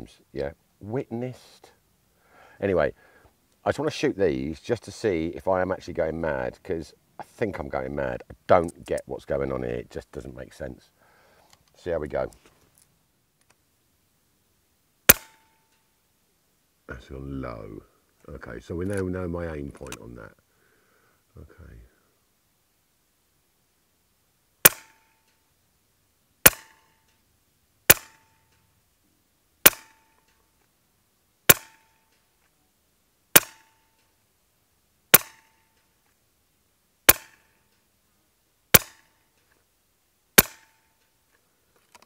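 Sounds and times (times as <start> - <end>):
air rifle shots: 15.1 - 15.6, 24.6 - 25.1, 26.4 - 26.8, 27.9 - 28.3, 29.6 - 30.1, 31.5 - 32.0, 33.4 - 33.8, 35.1 - 35.6, 37.1 - 37.5, 38.7 - 39.1, 40.4 - 40.8.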